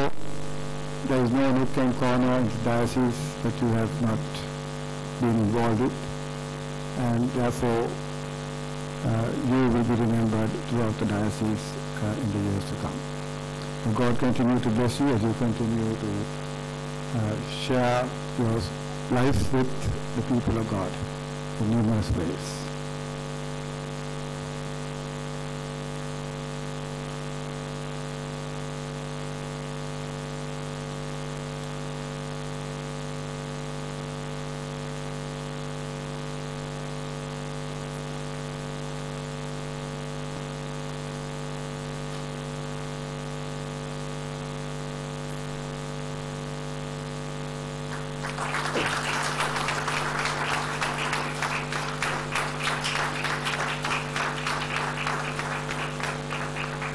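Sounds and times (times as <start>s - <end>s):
steady low hum: 0.0s - 56.9s
audience applauding: 47.9s - 56.9s.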